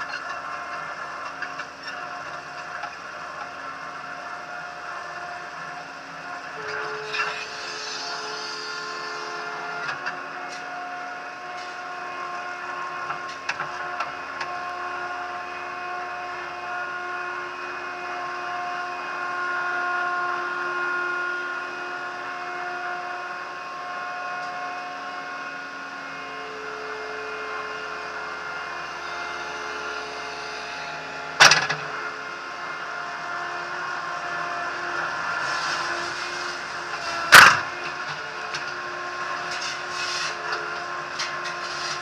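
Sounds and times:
loader engine running: 0:00.0 - 0:42.0
whining tones: 0:16.4 - 0:42.0.

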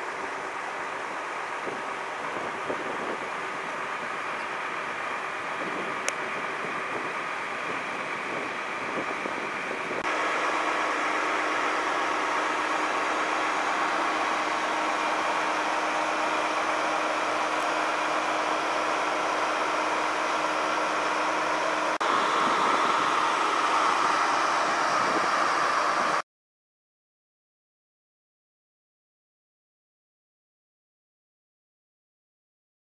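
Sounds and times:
engine idling: 0:00.0 - 0:26.2
trolley bus idling: 0:00.0 - 0:26.2
wash of noise: 0:00.0 - 0:26.2.

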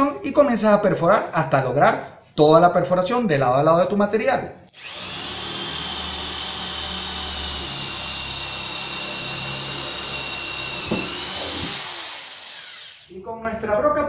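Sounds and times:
drill boring through wood: 0:04.7 - 0:13.2.

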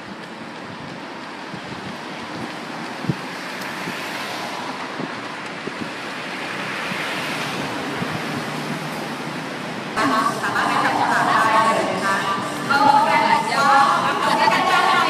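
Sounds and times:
wind blowing over microphone: 0:00.6 - 0:08.8.

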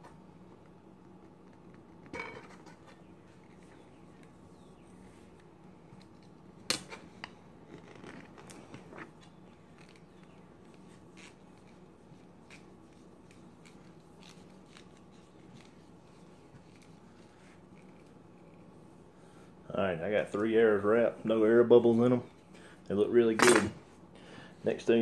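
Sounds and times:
handling arrow shaft: 0:02.0 - 0:18.8.

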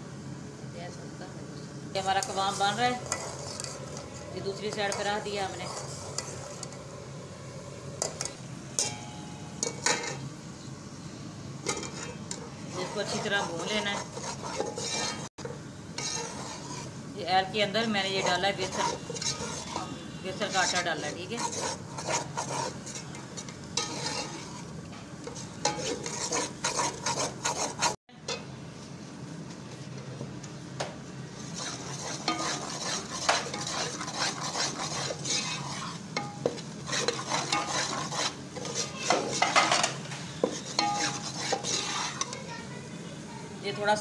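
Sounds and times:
spoon scraping steel pan: 0:02.1 - 0:06.8, 0:08.0 - 0:10.3, 0:11.6 - 0:28.4, 0:31.4 - 0:42.4.

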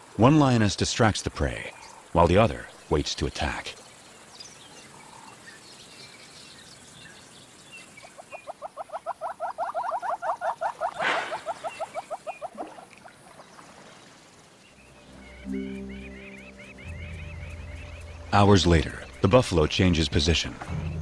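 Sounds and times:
faint bird chirps: 0:03.8 - 0:19.5
hornbill clucking call: 0:08.0 - 0:12.8, 0:14.9 - 0:19.4.

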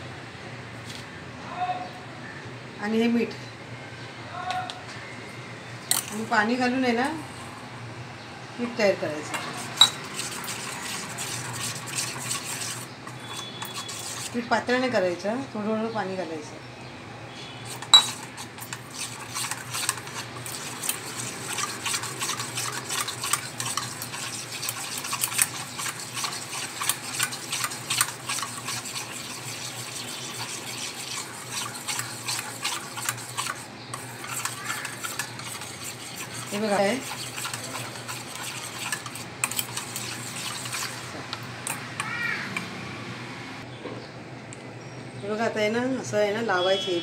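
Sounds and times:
wire whisk scraping a metal bowl: 0:09.2 - 0:14.9, 0:17.6 - 0:42.7.

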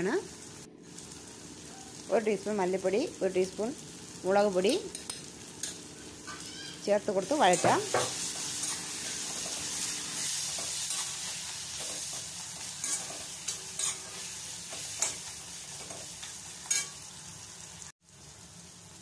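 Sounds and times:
food sizzling in hot oil: 0:00.0 - 0:19.0
metal spoon scraping a pan: 0:04.9 - 0:06.6, 0:07.3 - 0:17.0.

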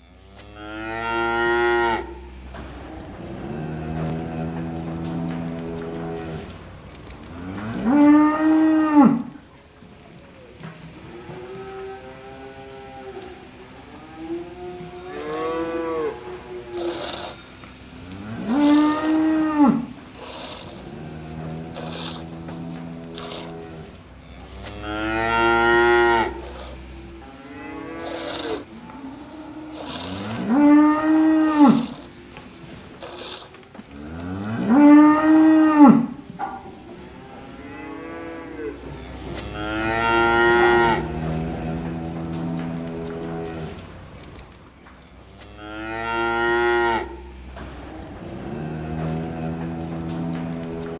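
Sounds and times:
cattle mooing: 0:14.2 - 0:36.2, 0:37.4 - 0:43.8.

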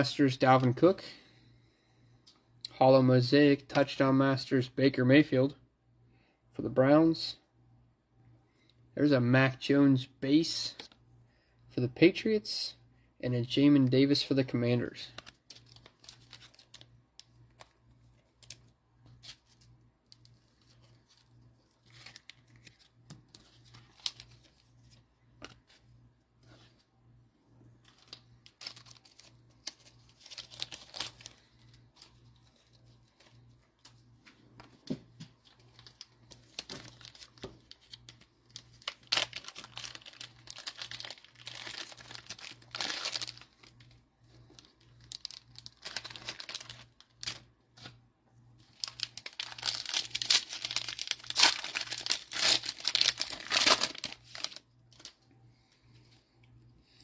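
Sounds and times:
cellophane wrappers tearing and crinkling: 0:15.1 - 0:16.9, 0:20.2 - 0:24.6, 0:27.9 - 0:33.3, 0:35.5 - 0:43.9, 0:44.6 - 0:47.4, 0:48.7 - 0:55.2.

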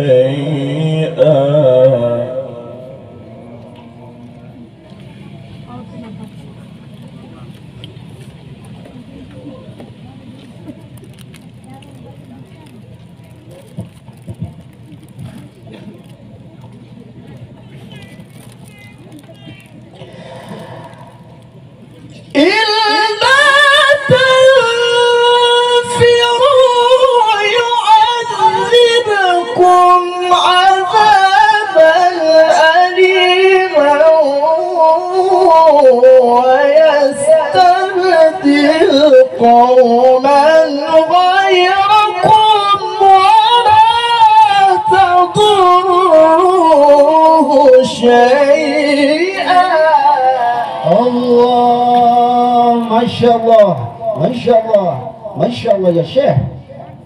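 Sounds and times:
man chanting into a microphone: 0:00.0 - 0:04.3, 0:22.2 - 0:56.9.

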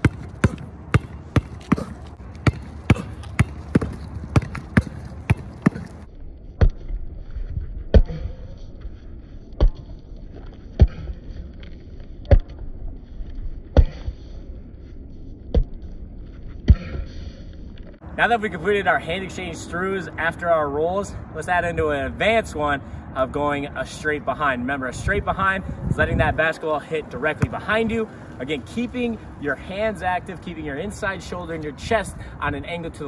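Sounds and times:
basketball bouncing on concrete: 0:00.0 - 0:06.8, 0:27.3 - 0:27.9.

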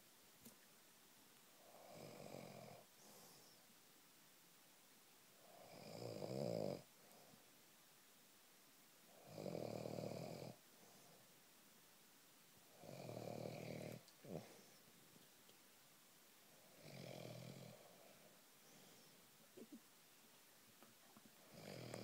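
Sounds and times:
slow snoring: 0:01.6 - 0:03.4, 0:05.4 - 0:07.2, 0:09.1 - 0:10.6, 0:12.7 - 0:14.8, 0:16.6 - 0:19.1, 0:21.4 - 0:22.0.

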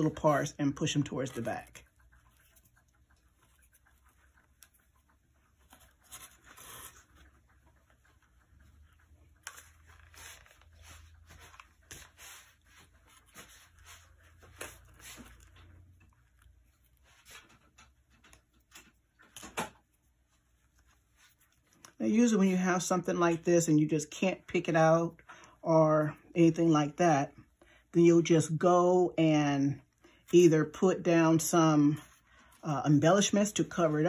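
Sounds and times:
hair rustling: 0:00.0 - 0:25.0.

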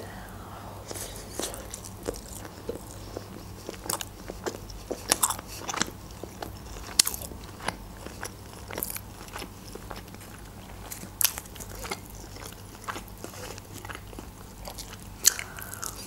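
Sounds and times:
person chewing crunchy food: 0:00.0 - 0:16.0
mouth clicks: 0:15.2 - 0:16.0.

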